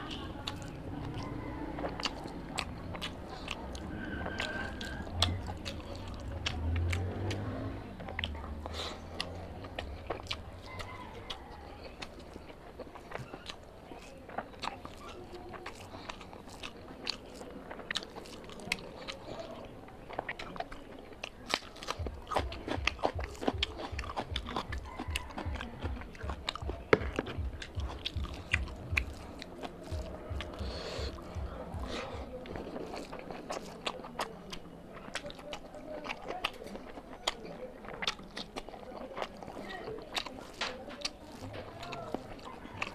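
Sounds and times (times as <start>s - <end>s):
crunching: 0.0s - 42.9s
person chewing and biting: 0.0s - 42.9s
wet mouth clicks and smacks: 20.1s - 42.9s.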